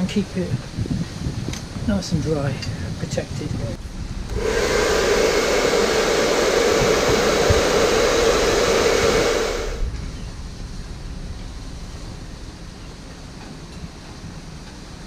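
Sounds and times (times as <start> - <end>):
hair dryer running: 4.3 - 9.9.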